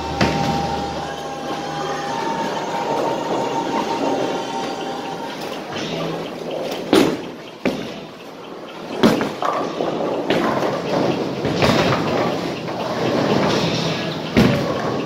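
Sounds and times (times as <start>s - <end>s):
bowling balls rumbling along lanes: 0.0s - 15.0s.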